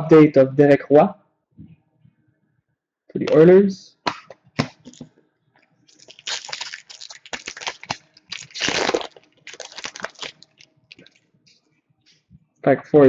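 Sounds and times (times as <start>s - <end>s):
foil wrapper tearing and crinkling: 5.9s - 11.2s.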